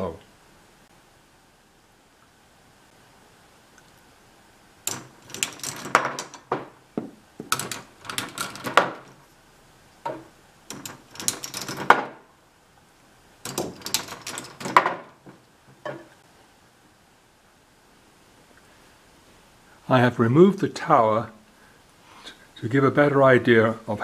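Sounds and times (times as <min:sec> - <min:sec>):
balls clattering through plastic track: 0:04.9 - 0:09.2, 0:10.1 - 0:12.3, 0:13.4 - 0:16.1.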